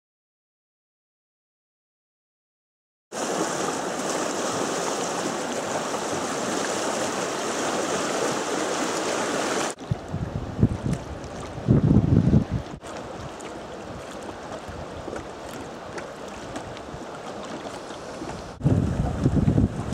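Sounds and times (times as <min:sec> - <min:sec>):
river water flowing: 0:03.2 - 0:11.8, 0:12.5 - 0:19.9
wind buffeting microphone: 0:09.8 - 0:19.9.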